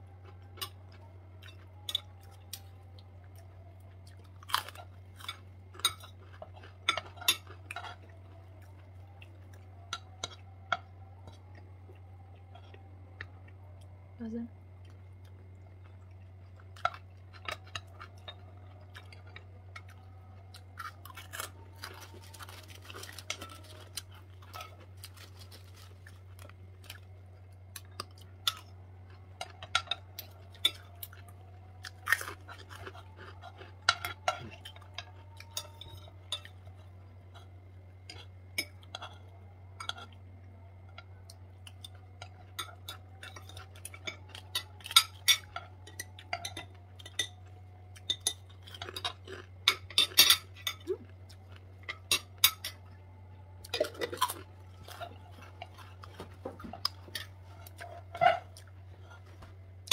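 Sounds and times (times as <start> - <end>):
steady low hum: 0.0 - 59.9
chewing: 0.1 - 14.0, 14.8 - 59.9.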